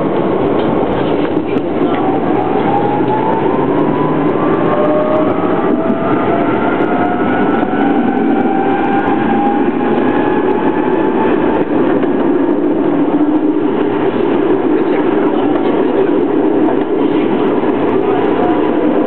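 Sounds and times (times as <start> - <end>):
tram wheels rumbling on rail: 0.0 - 19.0
tram motor whine rising: 1.4 - 14.8.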